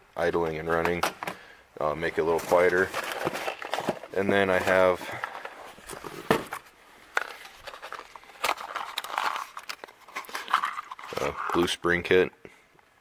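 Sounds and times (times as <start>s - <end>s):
cardboard rustling and scraping: 2.1s - 11.7s.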